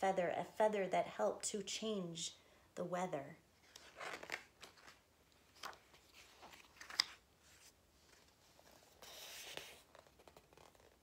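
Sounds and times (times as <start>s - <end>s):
paper page rustle: 3.7s - 11.0s.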